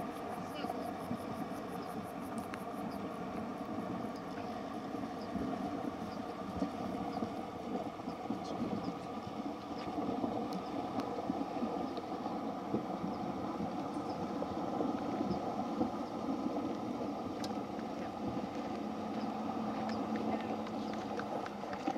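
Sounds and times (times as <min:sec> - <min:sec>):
low steady hum: 0:00.0 - 0:21.9
river water churning around wheels: 0:00.0 - 0:21.9
faint ticks: 0:01.1 - 0:07.3, 0:08.1 - 0:11.1, 0:17.4 - 0:21.9.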